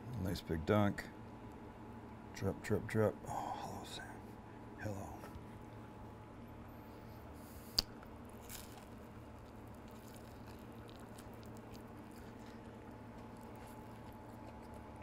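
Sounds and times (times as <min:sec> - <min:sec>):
low steady hum: 0:00.0 - 0:15.0
biting a crisp sandwich: 0:07.4 - 0:15.0
soft chewing clicks: 0:07.4 - 0:15.0.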